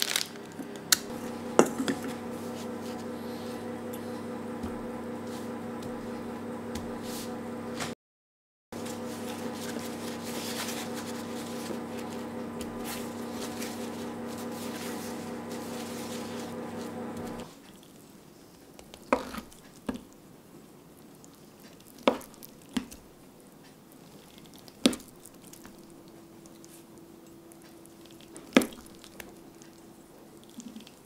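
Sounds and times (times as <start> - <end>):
paper towel crinkling: 0.0 - 0.5, 8.8 - 17.5
steady hum: 0.2 - 8.0, 8.8 - 17.5.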